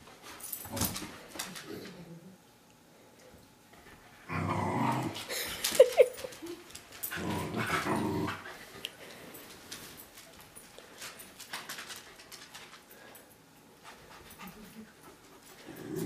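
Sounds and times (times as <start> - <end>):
small dogs play-growling: 3.9 - 5.8, 6.4 - 8.8, 15.5 - 16.0.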